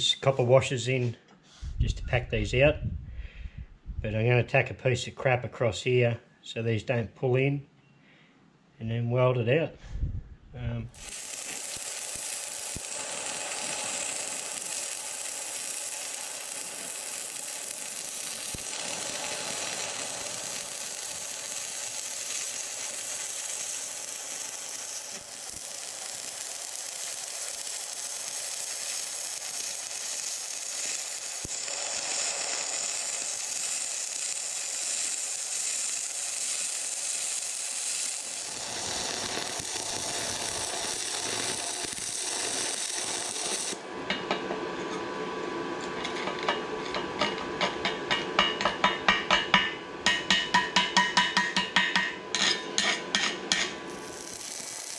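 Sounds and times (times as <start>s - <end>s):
arc welding crackling sizzle: 10.8s - 45.0s, 52.4s - 54.9s.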